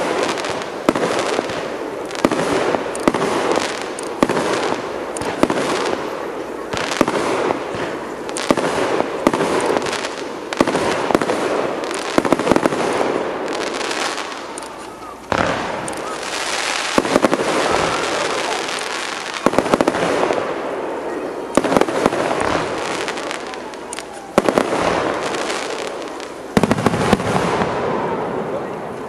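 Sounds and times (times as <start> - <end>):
firework pops: 0.0 - 6.1, 6.7 - 20.4
firework shells bursting: 0.0 - 20.6
fireworks crackling: 0.0 - 29.0.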